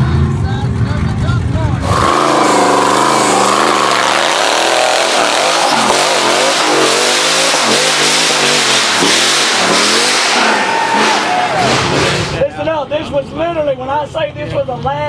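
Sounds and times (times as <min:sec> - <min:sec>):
buggy engine revving: 0:00.0 - 0:15.0.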